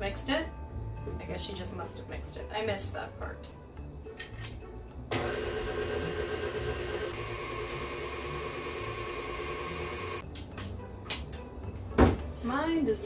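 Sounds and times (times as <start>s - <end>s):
stand mixer motor running: 5.1s - 10.2s
high motor whine: 5.2s - 10.2s.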